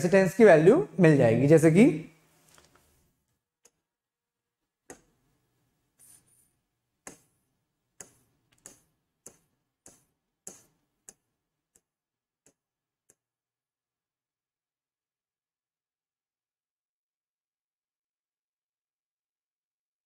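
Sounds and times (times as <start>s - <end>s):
stylus tapping on screen: 4.8s - 5.3s, 6.0s - 13.2s.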